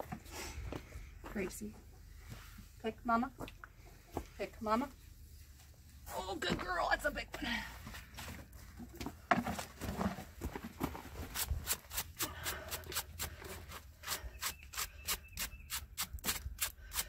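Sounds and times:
tool scraping a hoof: 9.3 - 17.0.

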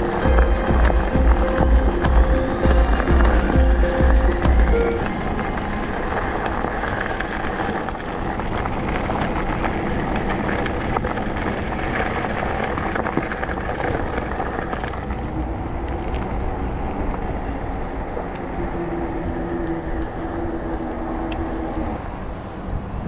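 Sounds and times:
bike tyres crunching on gravel: 0.0 - 17.7
wind buffeting microphone: 0.0 - 23.0.

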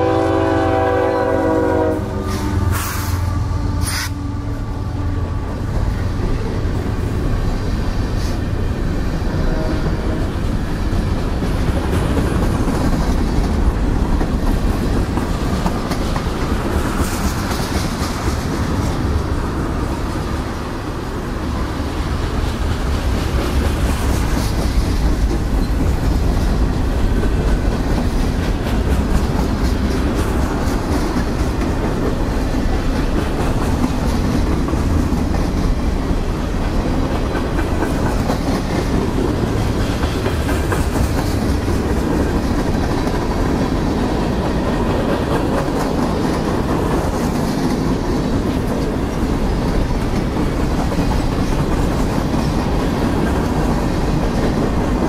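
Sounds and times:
steel wheels rumbling on rails: 0.0 - 55.0
wheels clicking over track: 22.2 - 55.0.

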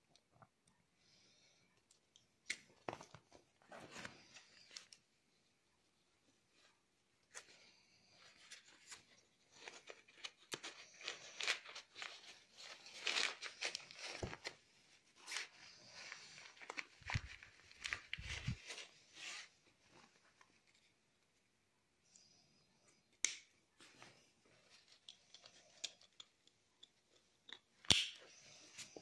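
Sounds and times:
nylon fabric rustling: 11.9 - 20.7.

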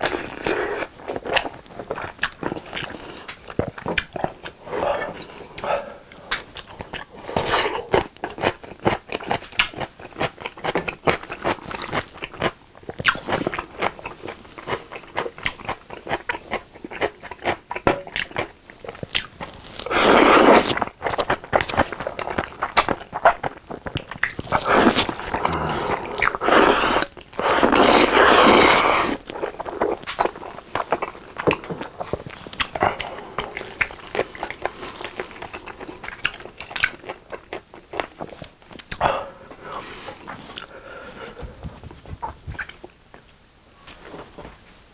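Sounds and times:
wet chewing: 0.0 - 39.1
slurping noodles: 19.8 - 20.8, 24.5 - 29.4.

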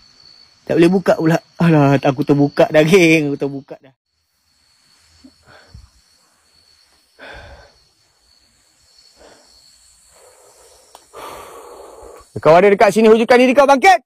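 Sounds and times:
man breathing: 5.2 - 12.4.

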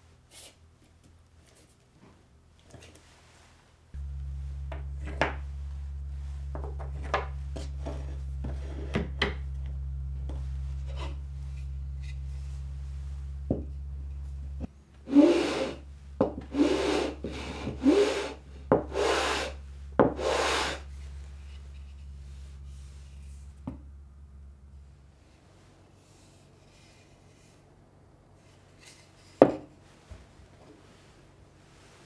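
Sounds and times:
steady low hum: 0.0 - 32.0
wooden board rubbed on sandpaper: 15.1 - 15.8, 16.4 - 23.4.

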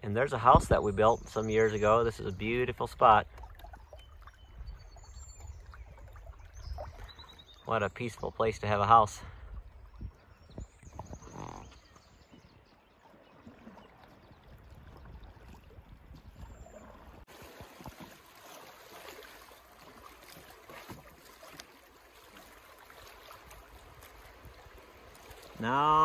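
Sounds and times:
canoe knocks and splashes: 12.3 - 26.0
river water rushing: 17.3 - 26.0.

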